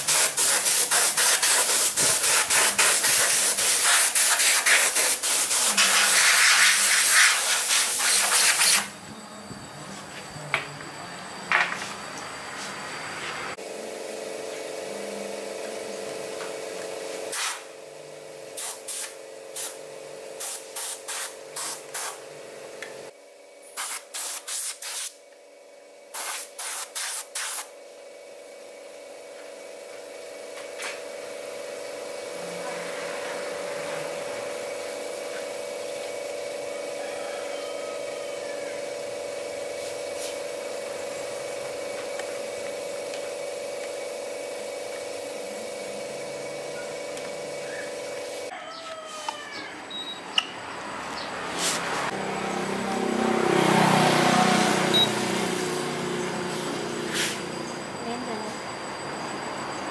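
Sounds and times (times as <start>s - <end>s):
compressed air hissing bursts: 0.0s - 9.0s, 17.2s - 17.8s, 18.5s - 22.2s, 23.6s - 25.2s, 26.1s - 27.8s, 39.0s - 48.5s, 56.4s - 57.6s
steady machine hum: 0.0s - 23.8s, 27.6s - 48.5s, 49.8s - 59.9s.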